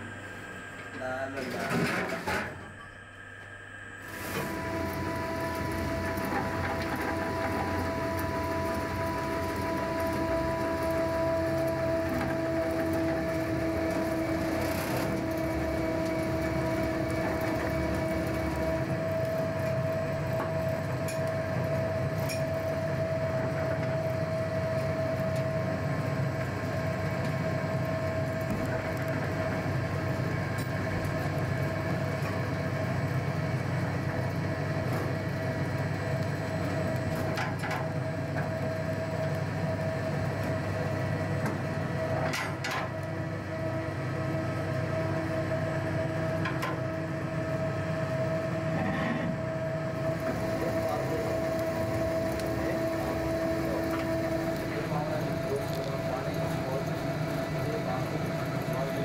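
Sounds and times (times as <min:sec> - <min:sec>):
machinery hum: 0:00.0 - 0:59.0.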